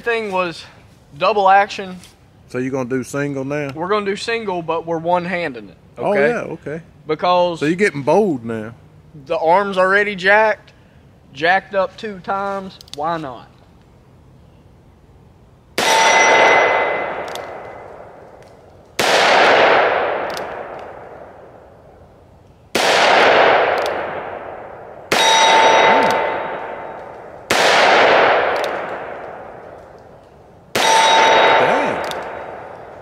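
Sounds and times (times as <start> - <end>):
bullet ringing on steel: 15.8 - 17.9, 25.1 - 27.1, 30.8 - 32.8
revolver shots echoing: 19.0 - 21.7, 22.7 - 30.0, 30.7 - 33.0.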